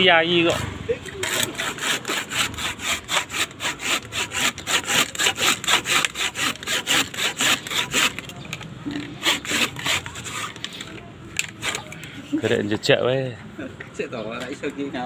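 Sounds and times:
handsaw cutting through wood: 0.3s - 8.3s, 9.0s - 12.0s.

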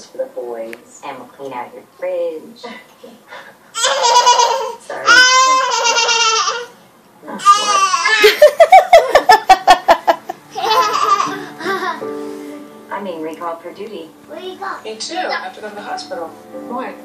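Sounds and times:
toddler laughing: 3.8s - 6.8s, 7.4s - 12.1s
toddler squealing: 3.8s - 6.8s, 7.4s - 8.3s.

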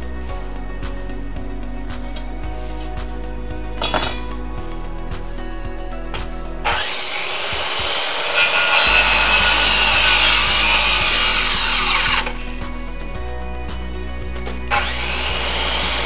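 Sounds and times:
background music: 0.0s - 16.0s
power saw cutting wood: 6.6s - 12.6s, 14.6s - 16.0s.

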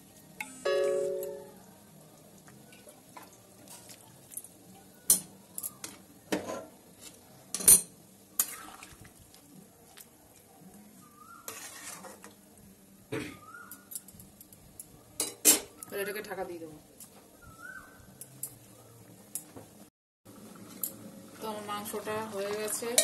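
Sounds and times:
metal spatula scraping metal pan: 11.4s - 12.3s.

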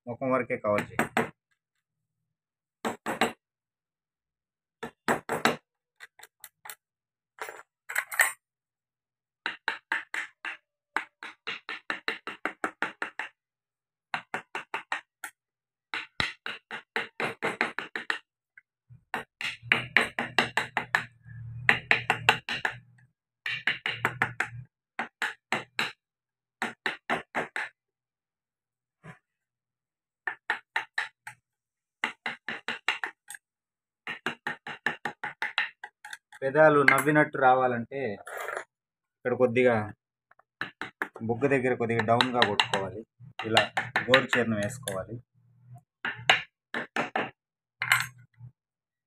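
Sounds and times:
chisel tapping on wood: 0.8s - 1.3s, 9.4s - 13.4s, 15.9s - 18.2s, 19.1s - 26.0s, 26.6s - 27.7s, 30.2s - 31.4s, 32.0s - 33.4s, 34.0s - 36.2s, 40.4s - 41.3s, 41.9s - 45.0s, 46.0s - 48.0s.

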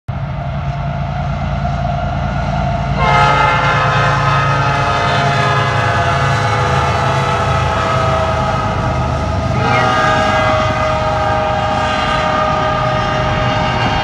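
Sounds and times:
diesel locomotives rumbling: 0.1s - 14.0s
locomotive air horn chord: 3.0s - 7.1s, 9.5s - 14.0s.

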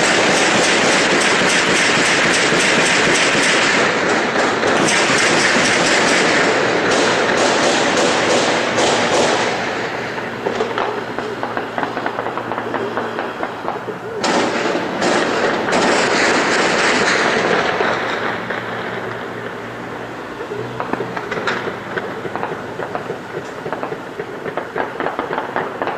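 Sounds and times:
automatic gunfire bursts: 0.0s - 18.7s
single gunshots: 14.2s - 17.9s.

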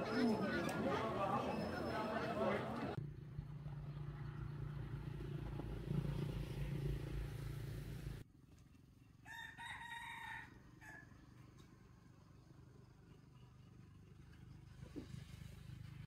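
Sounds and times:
rooster crowing: 9.2s - 11.1s.

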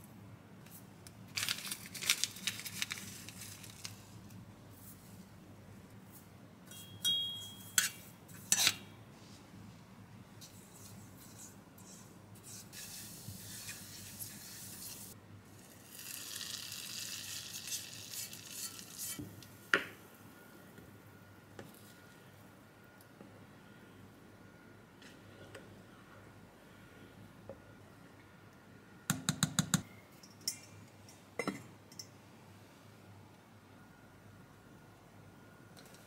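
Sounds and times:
oil sizzling in saucepan: 15.8s - 19.2s.

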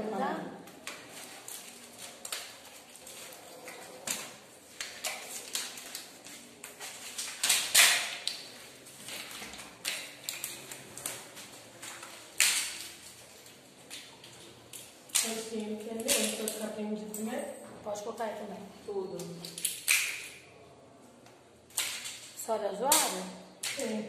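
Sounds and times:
clothing and foil crinkling: 0.6s - 17.4s.

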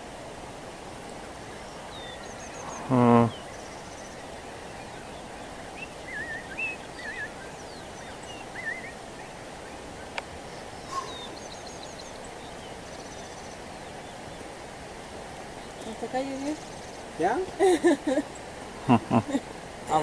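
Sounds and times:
outdoor hiss: 0.0s - 20.0s
birds whistling and chirping: 1.4s - 14.5s.

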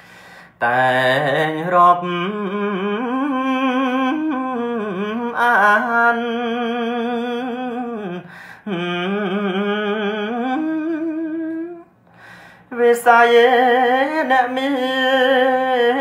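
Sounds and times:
man chanting: 0.6s - 11.8s.

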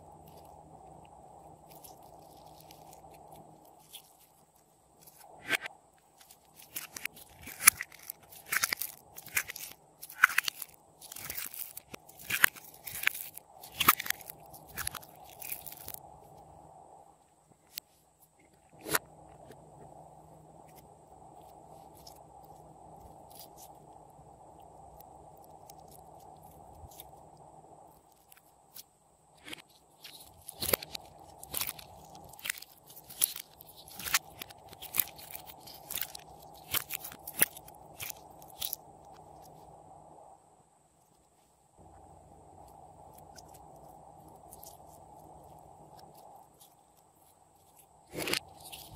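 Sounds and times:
sticky slime crackles and pops: 6.2s - 16.0s, 29.4s - 39.6s.

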